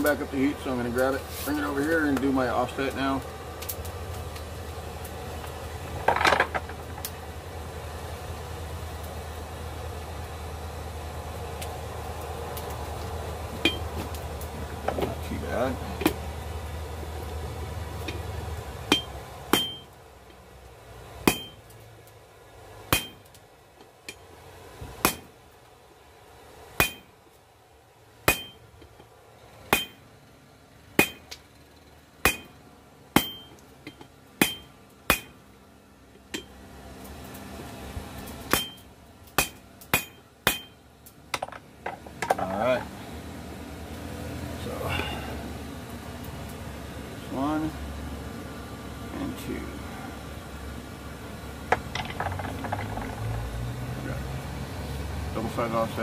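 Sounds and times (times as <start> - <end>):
hammer striking steel on anvil: 18.9 - 19.9, 21.2 - 21.7, 22.9 - 23.3, 25.0 - 25.3, 26.8 - 27.1, 28.3 - 28.7, 29.7 - 30.0, 31.0 - 31.4, 32.2 - 35.4, 36.3 - 36.5, 38.5 - 41.6.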